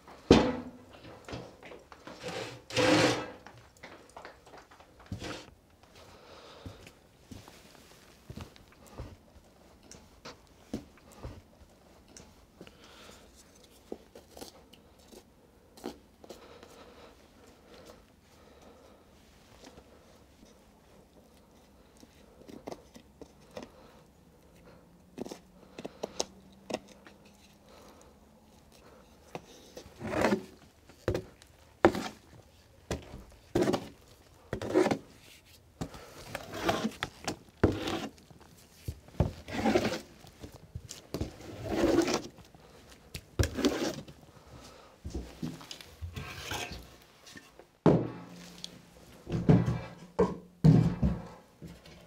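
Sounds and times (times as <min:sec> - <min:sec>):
hand tool scraping wooden floor: 0:00.3 - 0:03.6, 0:05.1 - 0:05.5, 0:29.4 - 0:32.3, 0:32.9 - 0:38.3, 0:39.2 - 0:42.5, 0:43.4 - 0:44.2, 0:45.1 - 0:48.7, 0:49.3 - 0:51.8.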